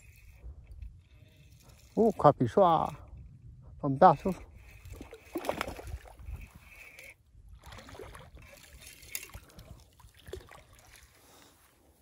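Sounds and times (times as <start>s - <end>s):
fishing rod and reel handling: 0.0s - 11.8s
fish splashing in water: 4.9s - 6.2s.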